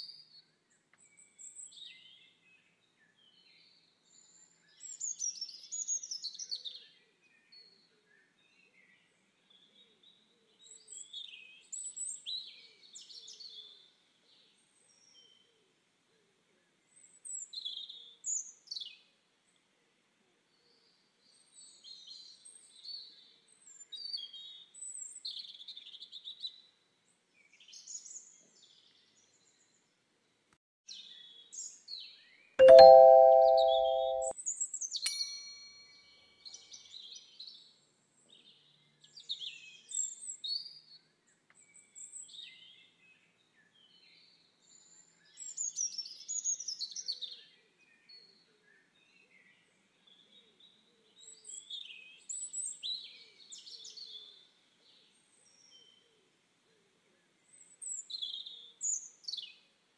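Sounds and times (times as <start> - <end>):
notification bell chime: 32.6 - 34.3, 35.1 - 35.8.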